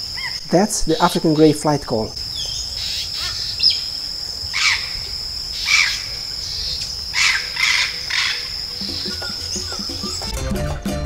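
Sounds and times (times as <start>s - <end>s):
high-pitched insect drone: 0.0s - 10.4s
parrot calling: 2.5s - 3.9s, 4.5s - 5.0s, 5.6s - 10.3s.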